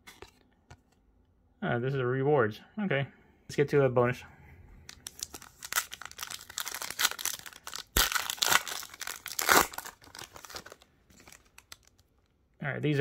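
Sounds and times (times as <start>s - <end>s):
foil wrapper tearing and crinkling: 4.9s - 12.0s.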